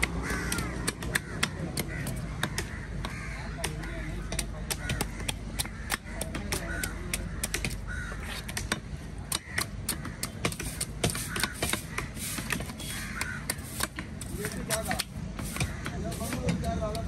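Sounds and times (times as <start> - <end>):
crows cawing: 0.0 - 17.0.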